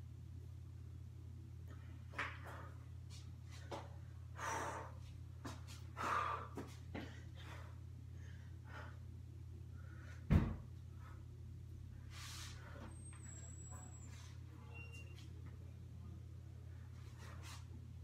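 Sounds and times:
steady low hum: 0.0s - 18.0s
man breathing hard: 4.3s - 5.1s, 5.7s - 10.3s
loud thump: 10.3s - 10.6s.

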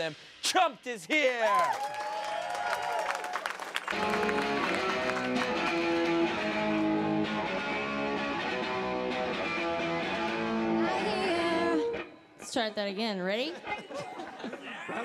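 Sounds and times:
live rock band playing: 3.9s - 12.1s.

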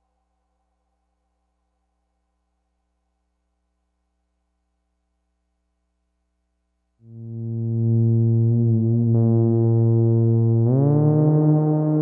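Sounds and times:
synthesizer brass note: 7.1s - 12.0s.

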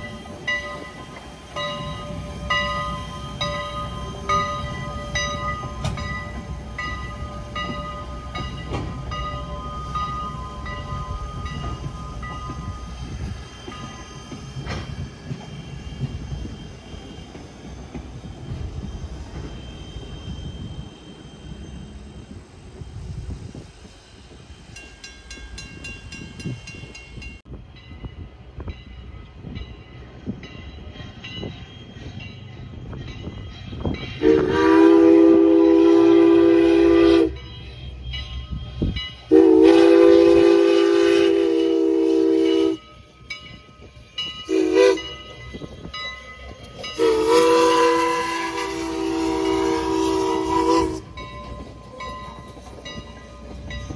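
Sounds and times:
steam locomotive whistle blasts: 33.8s - 43.1s, 44.4s - 45.6s, 46.8s - 51.8s.

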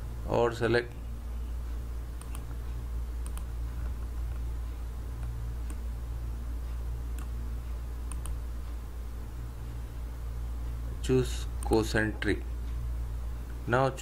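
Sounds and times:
steady low hum: 0.0s - 14.0s
computer mouse clicking: 2.2s - 2.5s, 3.2s - 4.4s, 5.2s - 5.8s, 7.1s - 7.4s, 8.1s - 8.4s.

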